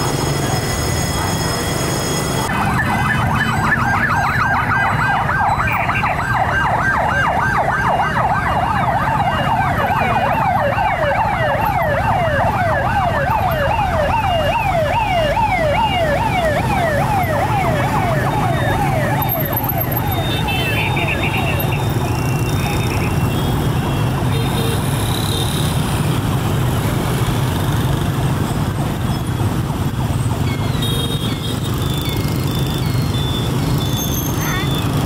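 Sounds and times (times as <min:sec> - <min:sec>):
fire truck siren yelping: 0:00.0 - 0:24.3
road traffic: 0:00.0 - 0:35.0.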